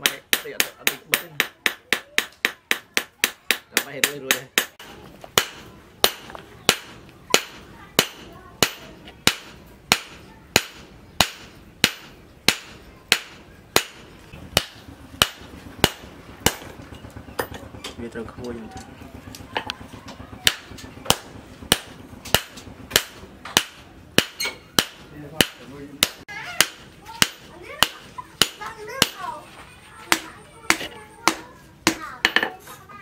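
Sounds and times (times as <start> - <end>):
hammer striking steel on anvil: 0.0 - 16.7, 20.4 - 29.2.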